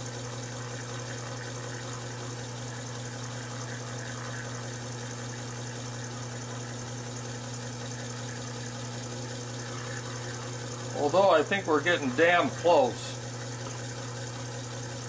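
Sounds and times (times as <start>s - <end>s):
lathe motor humming: 0.0s - 15.0s.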